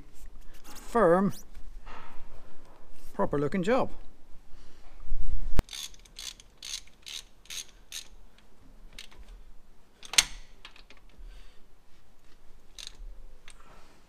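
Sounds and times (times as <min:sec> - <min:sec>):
ratchet spanner clicking: 0:05.7 - 0:08.2, 0:12.8 - 0:13.0.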